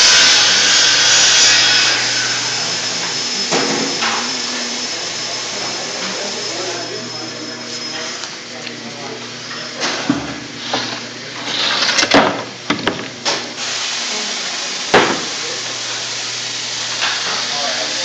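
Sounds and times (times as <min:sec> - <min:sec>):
machine hiss: 0:00.0 - 0:08.2, 0:13.4 - 0:18.0
wood knocking and clattering: 0:12.2 - 0:13.1.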